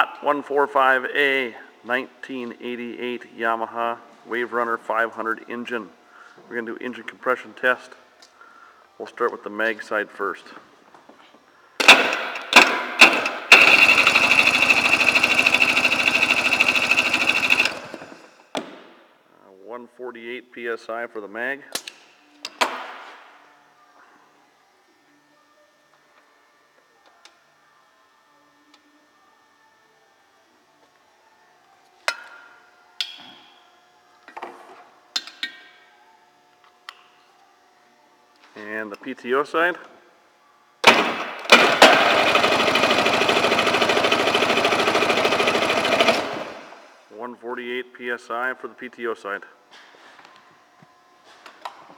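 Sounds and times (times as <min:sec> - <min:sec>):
electric starter cranking engine: 0:11.8 - 0:18.4, 0:40.8 - 0:47.0.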